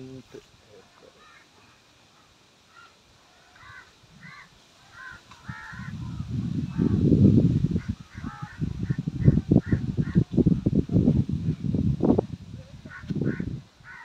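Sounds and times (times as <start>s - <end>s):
crows cawing: 1.0s - 6.9s, 7.8s - 10.3s, 12.9s - 14.0s
wind buffeting microphone: 5.1s - 14.0s.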